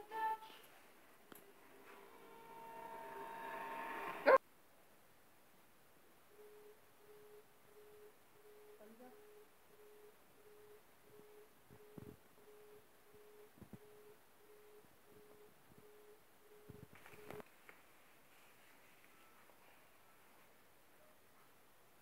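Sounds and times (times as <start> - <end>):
faint electronic beep: 6.3 - 17.4, 19.0 - 21.2.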